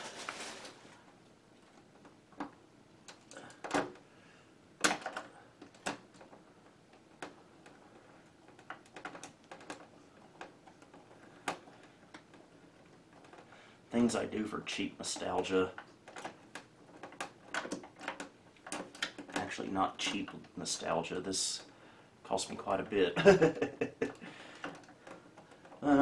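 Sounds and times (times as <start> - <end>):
hands clicking and tapping plastic: 8.4 - 13.5, 15.0 - 19.5.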